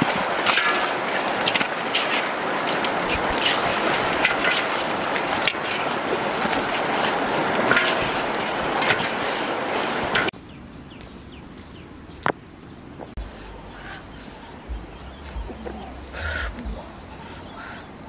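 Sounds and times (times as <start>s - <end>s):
river water rushing: 0.0s - 10.3s.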